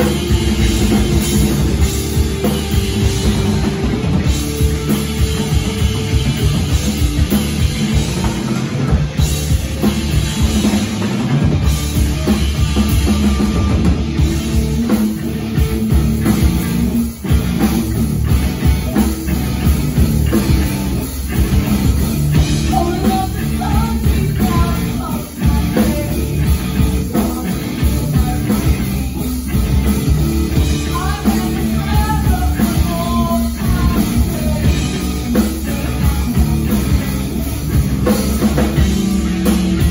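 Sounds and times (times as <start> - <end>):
drum kit: 0.0 - 39.9
electric bass: 0.0 - 39.9
electric guitar: 0.0 - 39.9
person singing: 22.6 - 29.3, 30.6 - 36.7.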